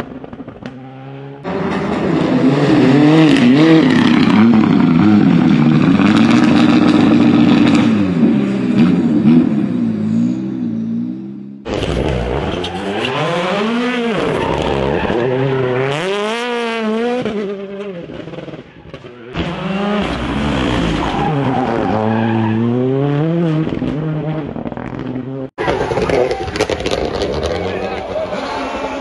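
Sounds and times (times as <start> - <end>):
rally car engines revving: 0.0 - 29.0
tyres skidding on dirt: 11.6 - 29.0.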